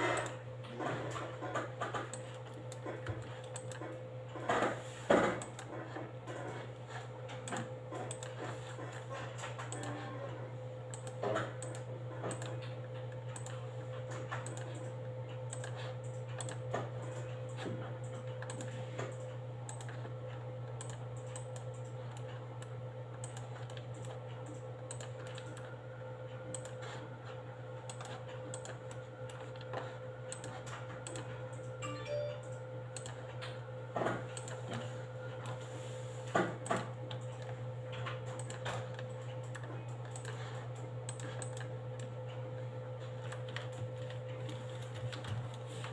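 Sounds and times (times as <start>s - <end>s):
computer mouse clicks: 1.8s - 3.9s, 5.3s - 5.7s, 7.4s - 10.0s, 10.9s - 13.6s, 14.2s - 25.7s, 26.5s - 31.7s, 33.0s - 33.5s, 34.3s - 35.6s, 36.6s - 42.1s
keyboard clicks: 2.1s - 3.9s, 7.4s - 10.0s, 10.9s - 13.6s, 14.3s - 14.9s, 15.5s - 20.0s, 20.6s - 25.7s, 26.5s - 26.9s, 30.3s - 33.3s, 36.6s - 40.5s, 41.1s - 42.1s.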